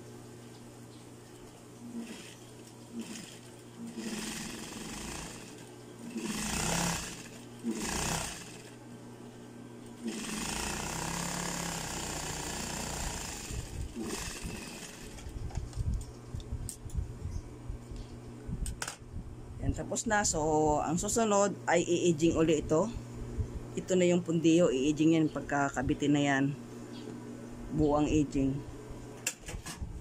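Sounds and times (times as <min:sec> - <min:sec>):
sewing machine stitching: 0:02.0 - 0:02.4, 0:03.0 - 0:08.8, 0:10.0 - 0:15.2.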